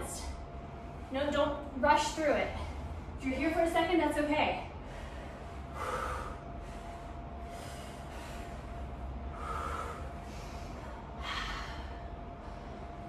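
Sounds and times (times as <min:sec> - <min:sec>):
woman breathing hard: 0:04.7 - 0:13.0.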